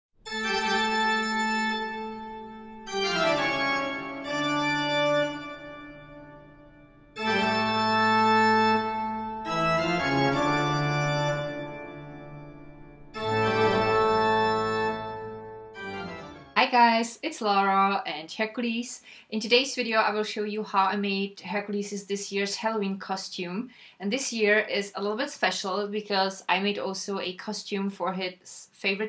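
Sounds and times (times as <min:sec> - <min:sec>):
organ chords: 0:00.2 - 0:16.6.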